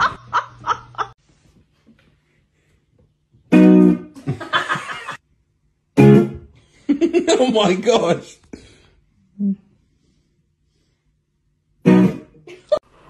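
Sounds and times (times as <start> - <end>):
plucked guitar music: 3.5 - 4.2, 6.0 - 6.5, 11.8 - 12.4.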